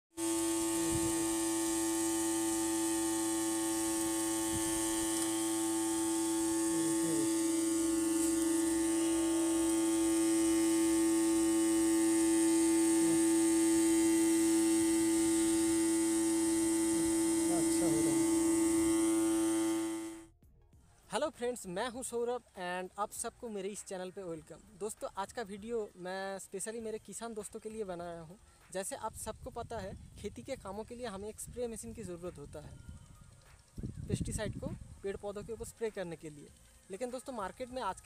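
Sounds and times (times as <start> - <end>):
spray pump humming: 0.1 - 20.4, 21.1 - 38.0
nozzle spray hissing: 0.2 - 20.2.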